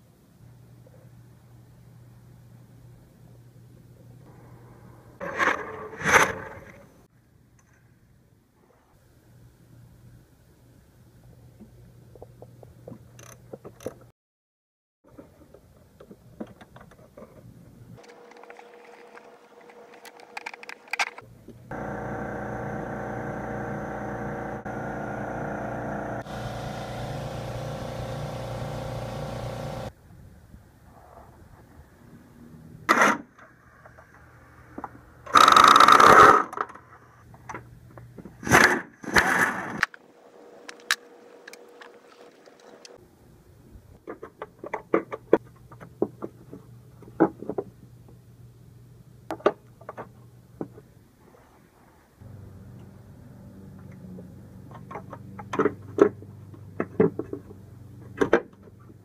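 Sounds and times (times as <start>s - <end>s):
steady low hum: 21.2s - 29.9s
car engine running: 21.7s - 29.9s.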